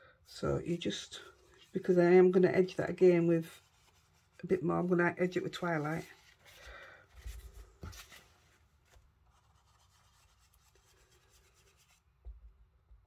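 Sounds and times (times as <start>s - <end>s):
brush rubbing ink onto card: 9.3s - 12.0s.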